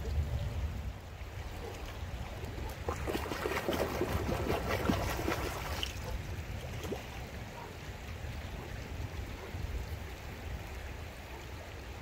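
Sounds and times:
fish splashing at surface: 2.8s - 6.1s.

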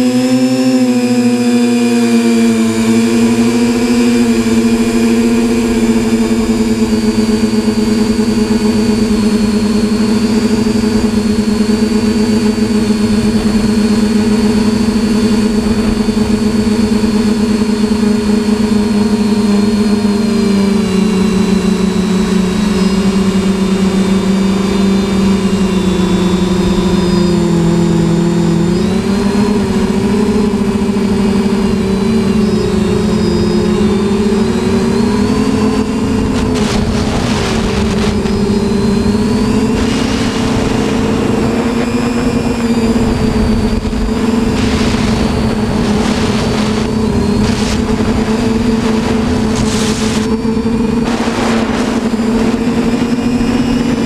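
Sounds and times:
quadcopter motors buzzing: 0.0s - 54.0s
wind rumble: 25.2s - 54.0s
rush of air: 36.4s - 53.4s.

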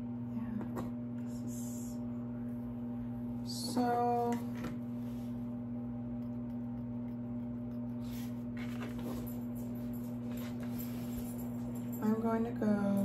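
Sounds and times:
low electrical hum: 0.0s - 13.0s
rustles and scrapes of wood and paper: 8.0s - 9.4s.

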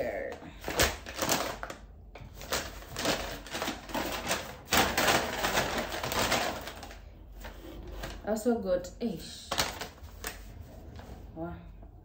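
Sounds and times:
packaging rustling and crinkling: 0.3s - 8.3s, 9.4s - 10.7s.

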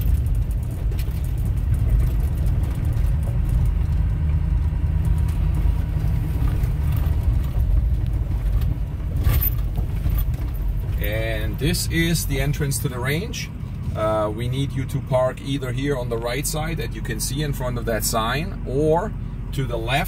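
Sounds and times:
light knocks and rattles: 0.0s - 11.8s
vehicle engine and tyres rumbling: 0.0s - 20.0s.

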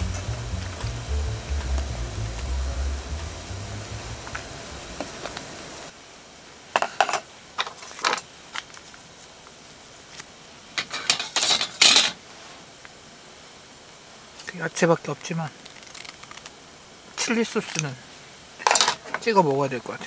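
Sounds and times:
utensils clinking on dishes: 10.8s - 12.2s, 18.6s - 19.2s.

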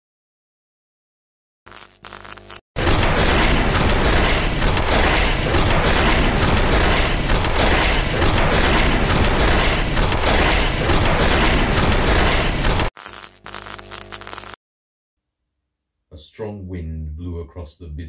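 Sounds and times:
rumbling booms and crackles: 2.8s - 12.9s.

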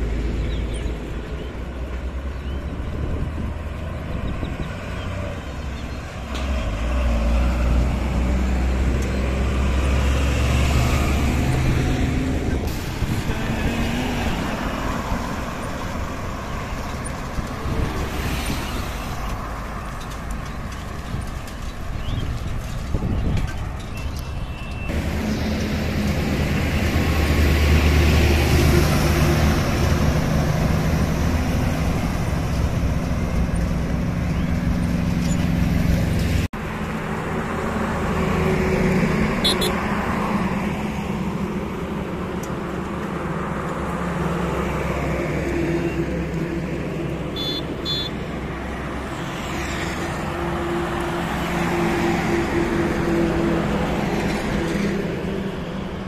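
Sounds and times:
trucks and motorcycles passing: 0.0s - 56.0s
short high beeps: 47.4s - 48.1s.

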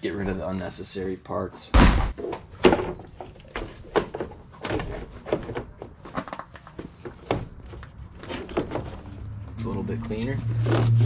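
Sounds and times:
wooden trim knocking and scraping: 2.1s - 9.1s.

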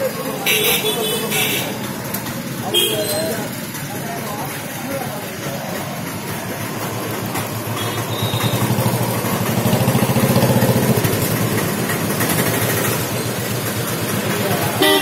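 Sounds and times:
small vehicle engine passing: 5.4s - 14.8s.

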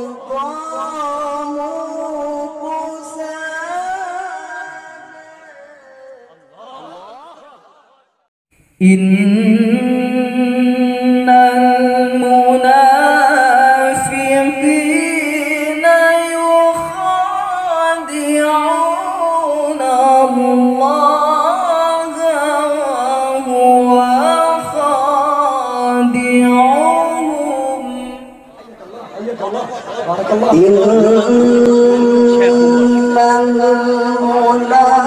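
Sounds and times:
male melodic recitation: 8.8s - 28.7s, 30.4s - 35.0s.

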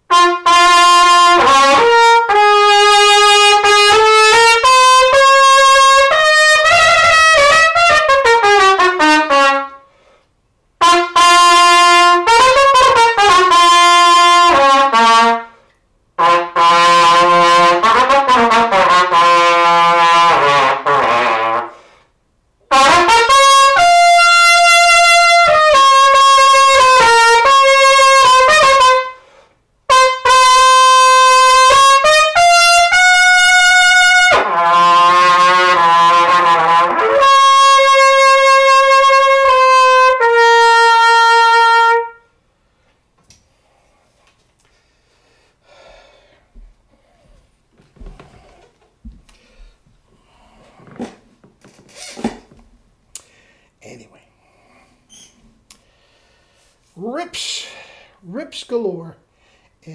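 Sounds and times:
solo trumpet playing fast phrases: 0.1s - 9.9s, 10.8s - 15.6s, 16.2s - 21.9s, 22.7s - 29.3s, 29.9s - 42.4s.

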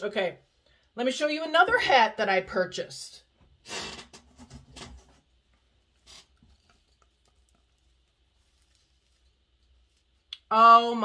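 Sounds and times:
straw hat rustling: 4.4s - 10.4s.

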